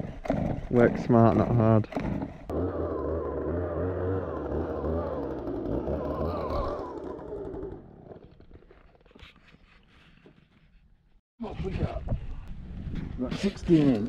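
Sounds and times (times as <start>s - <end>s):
engine running: 2.5s - 8.5s.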